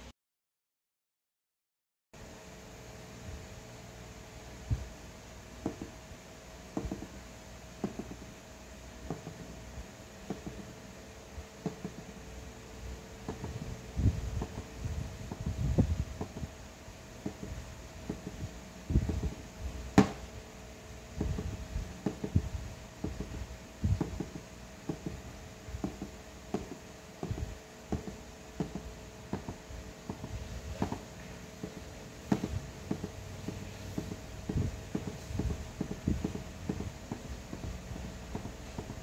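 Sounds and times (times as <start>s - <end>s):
faint steady hum: 2.2s - 39.0s
drumstick thumping rubber pads: 5.6s - 6.0s, 6.7s - 7.2s, 7.8s - 8.4s, 9.0s - 9.6s, 10.2s - 10.8s, 11.6s - 12.2s, 13.2s - 16.5s, 17.2s - 20.3s, 21.2s - 39.0s.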